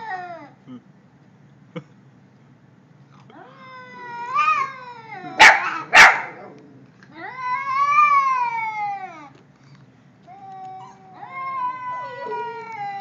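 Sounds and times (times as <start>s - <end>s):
cat yowling: 3.4s - 6.2s.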